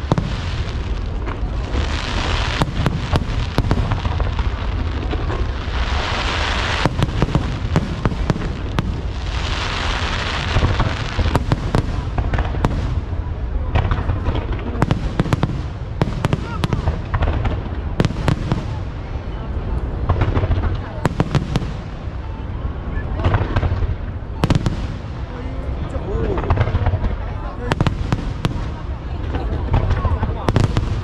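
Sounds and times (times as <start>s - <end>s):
firework hiss: 0.0s - 13.2s
firework bangs: 0.0s - 31.0s.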